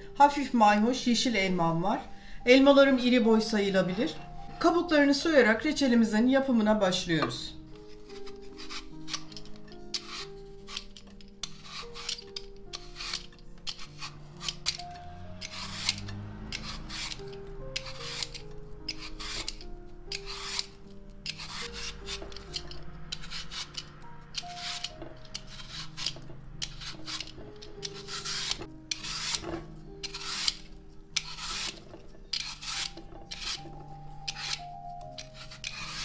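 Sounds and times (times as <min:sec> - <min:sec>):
peeler blade scraping apple skin: 0:07.7 - 0:36.0.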